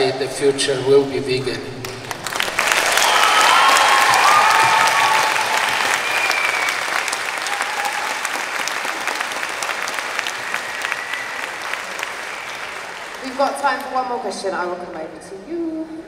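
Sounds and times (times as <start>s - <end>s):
audience applauding: 1.8s - 13.9s.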